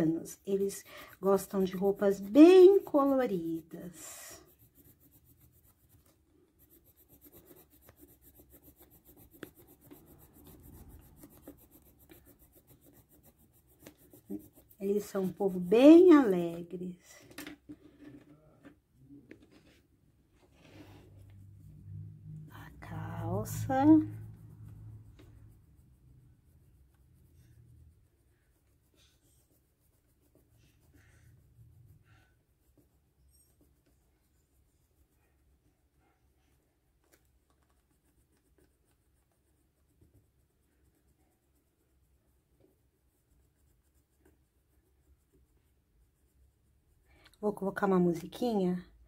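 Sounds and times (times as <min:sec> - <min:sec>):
colouring pen scratching on paper: 0:00.0 - 0:17.2, 0:19.3 - 0:49.0
low steady hum: 0:20.8 - 0:32.1.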